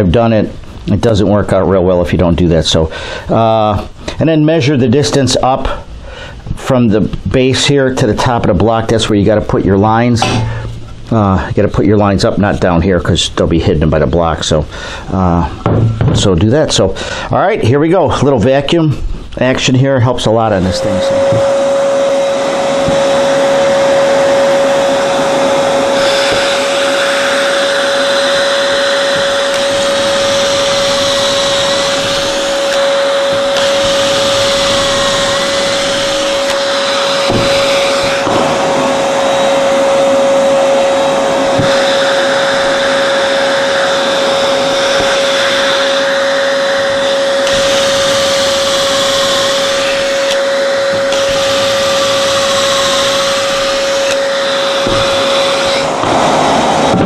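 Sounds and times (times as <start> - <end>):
shop vacuum whine: 7.6 - 11.6, 19.4 - 57.0
cordless drill boring wood: 20.6 - 57.0.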